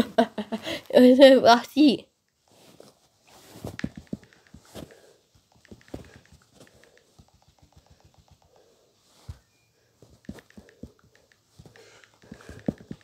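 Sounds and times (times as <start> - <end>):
small clicks and taps: 3.8 - 9.4, 10.0 - 13.0.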